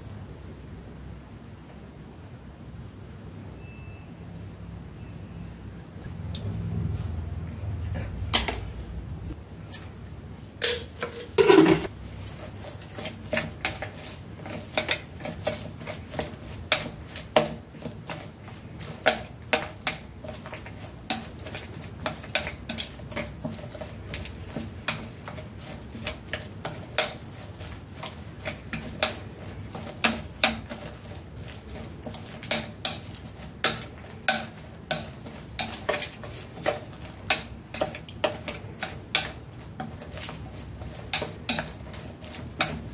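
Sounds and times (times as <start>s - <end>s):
chopsticks tapping a dish: 10.6s - 11.9s, 14.7s - 42.9s.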